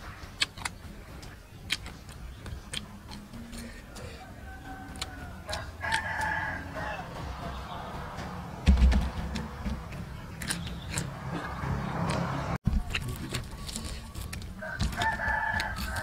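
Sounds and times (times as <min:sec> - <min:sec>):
chewing and crunching: 0:00.0 - 0:07.4, 0:10.3 - 0:16.0
rooster crowing: 0:04.1 - 0:07.4, 0:14.6 - 0:16.0
low thump: 0:08.6 - 0:09.9.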